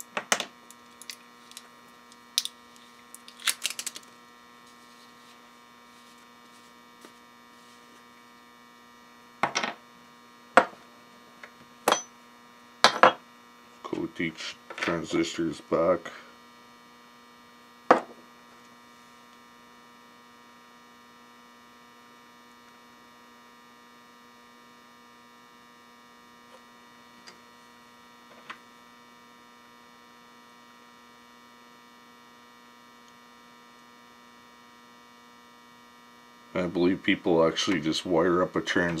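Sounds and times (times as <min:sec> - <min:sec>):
electrical mains hum: 0:00.0 - 0:39.0
object knocking on workbench: 0:09.4 - 0:09.8, 0:10.6 - 0:10.8, 0:17.9 - 0:18.2.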